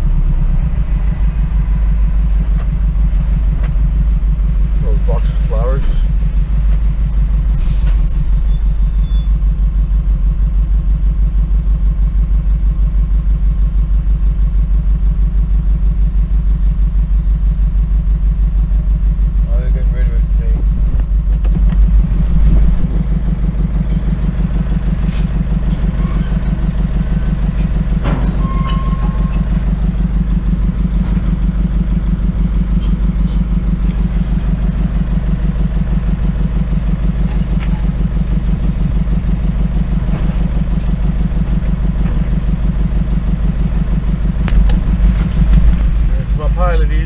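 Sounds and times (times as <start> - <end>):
truck engine idling: 0.0 - 47.0
sharp knocks and clatters: 44.4 - 46.2.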